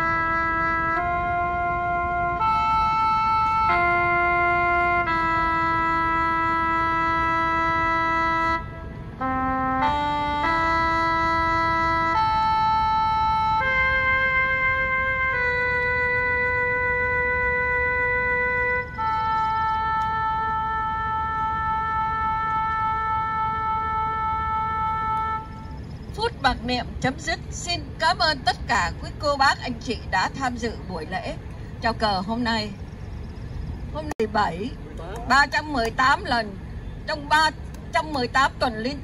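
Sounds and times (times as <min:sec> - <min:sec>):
slow wind instrument melody: 0:00.0 - 0:26.2.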